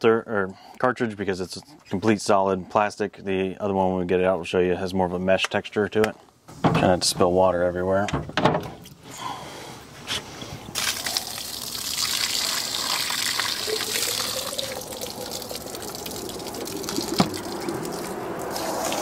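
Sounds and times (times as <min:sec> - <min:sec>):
water pouring onto grass: 0:10.7 - 0:19.0.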